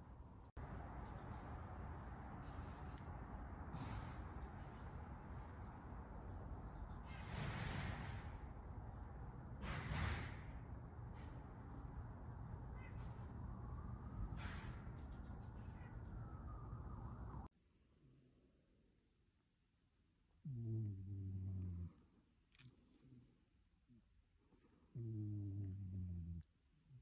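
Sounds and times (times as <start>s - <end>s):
faint high bird chirps: 11.8s - 17.5s.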